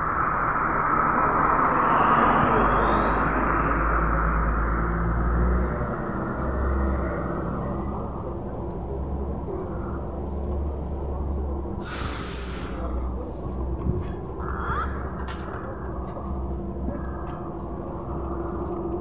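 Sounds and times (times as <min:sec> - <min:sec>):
low rumble of street traffic: 0:00.0 - 0:19.0
trolleybus pulling in: 0:00.0 - 0:19.0
air brakes hissing: 0:11.8 - 0:13.0.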